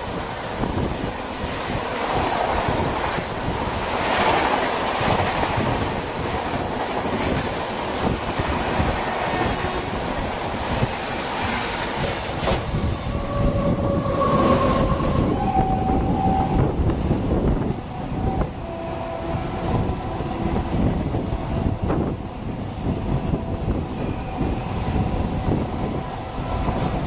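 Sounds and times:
freight train rolling past: 0.0 - 27.0
rain and wind noise: 0.0 - 27.0
locomotive horn: 12.8 - 27.0.

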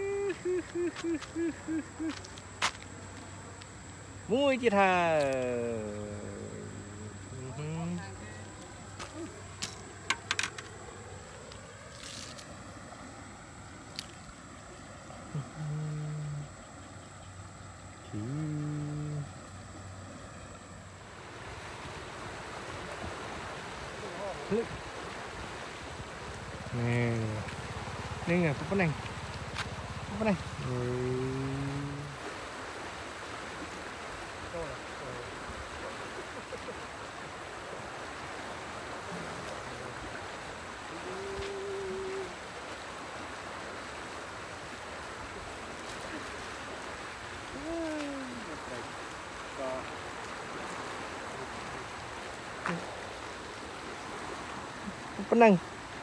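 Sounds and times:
flowing water rushing: 0.0 - 56.0
low hooting tone: 15.0 - 17.1, 17.8 - 20.7, 40.8 - 42.6.

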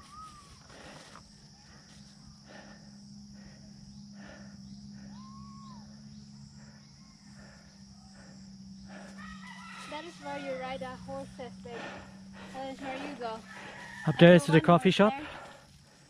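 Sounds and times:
steady low hum: 0.0 - 16.0
rooster crowing: 8.9 - 10.6, 13.3 - 14.9.

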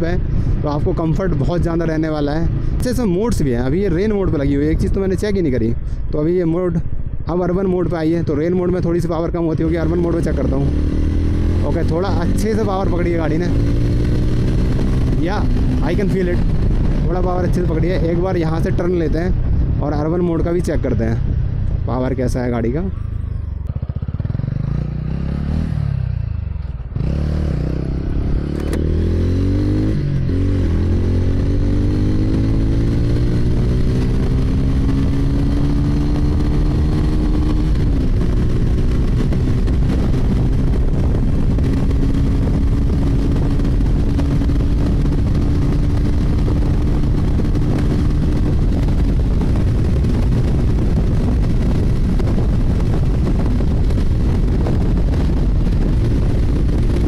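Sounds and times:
wind over the microphone: 0.0 - 57.0
motorcycle engine revving: 9.5 - 18.8, 21.1 - 57.0.

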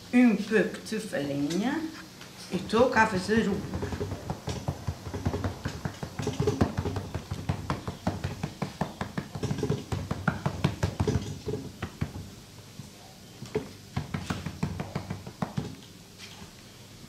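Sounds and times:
hands patting dough: 2.6 - 12.4, 13.4 - 15.9.

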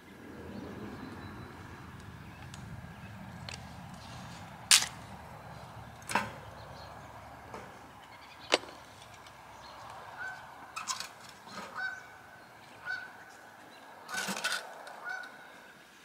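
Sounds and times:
kindling wood cracking: 7.4 - 12.2.

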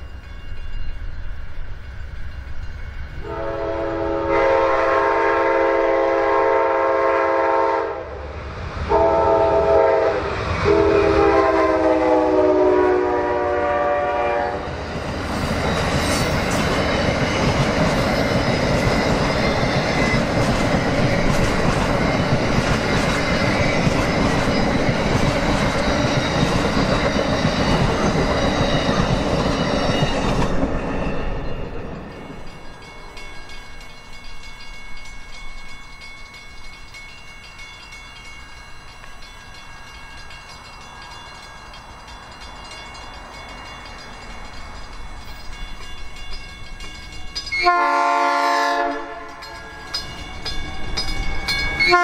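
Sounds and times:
train horn blasts: 3.2 - 8.3, 8.9 - 14.7, 47.5 - 49.7, 51.8 - 52.0
train wheels rumbling and clattering: 8.3 - 52.0.

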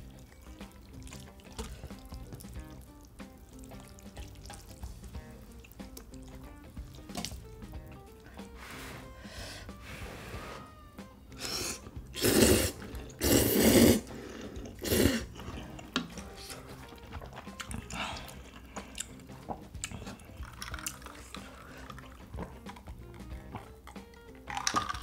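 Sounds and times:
wet chewing: 0.0 - 8.6, 11.3 - 25.0
loud noodle slurping: 8.5 - 25.0.

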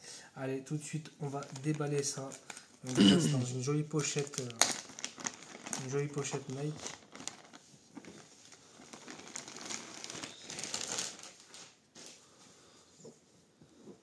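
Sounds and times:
plastic bag crinkling: 1.2 - 11.8.

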